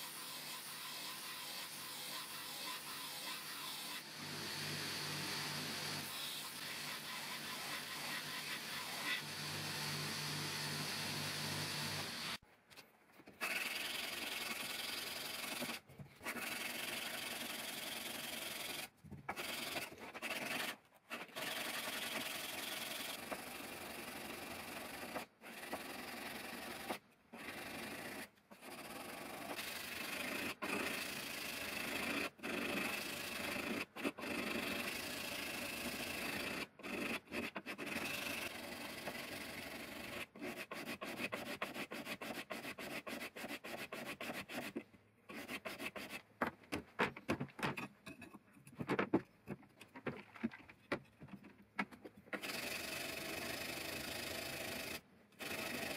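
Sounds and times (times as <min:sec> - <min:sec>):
knife blade being sanded: 0:40.4 - 0:46.2.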